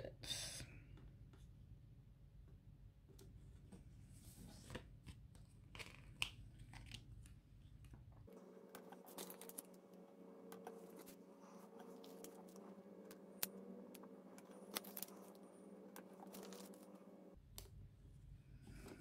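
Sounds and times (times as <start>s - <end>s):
paper rustling: 8.8s - 9.8s, 14.4s - 17.0s.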